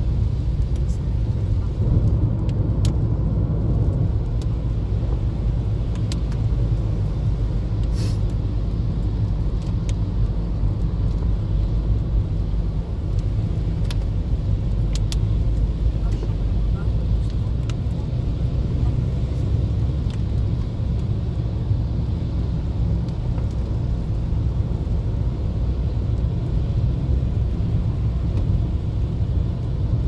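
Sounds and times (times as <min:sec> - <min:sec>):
car engine and tyres on wet road: 0:00.0 - 0:30.0
light ticks: 0:02.0 - 0:03.0, 0:03.7 - 0:05.2, 0:05.8 - 0:16.4, 0:17.0 - 0:18.0, 0:19.9 - 0:21.2, 0:22.9 - 0:24.2, 0:26.0 - 0:29.0.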